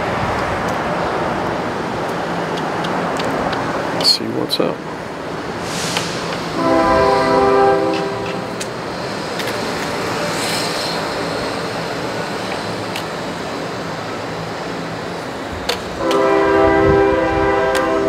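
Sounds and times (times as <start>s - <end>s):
outdoor street noise: 0.0s - 18.0s
loud chord horn blast: 6.6s - 8.5s, 16.0s - 18.0s.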